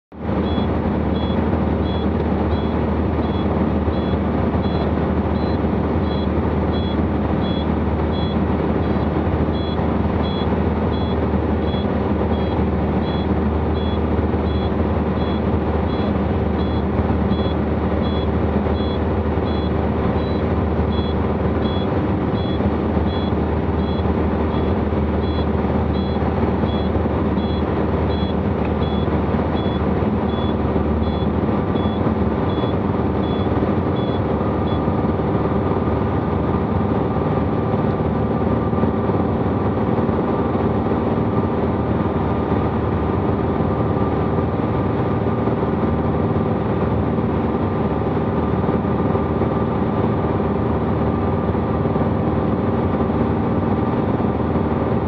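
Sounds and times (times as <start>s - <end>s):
light aircraft engine drone: 0.1s - 55.0s
short high-pitched beep: 0.4s - 9.0s, 9.6s - 34.8s.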